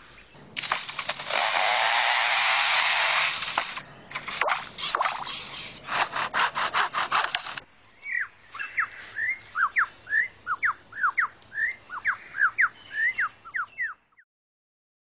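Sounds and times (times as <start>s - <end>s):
bird imitating chainsaw rasping: 0.7s - 7.6s
loud sweeping whistled bird notes: 8.0s - 14.0s.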